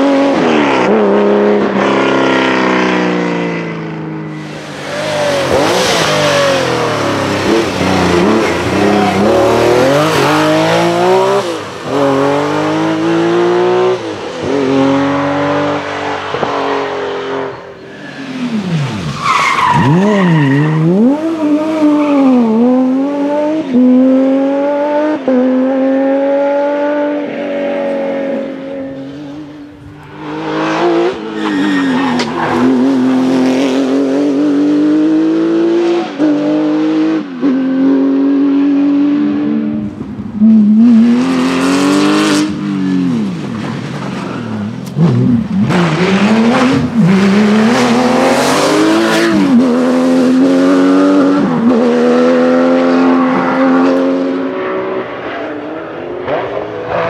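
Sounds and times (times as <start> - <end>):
rally car engines revving hard: 0.0 - 57.0
tyre squeal: 17.8 - 22.4, 31.1 - 33.0.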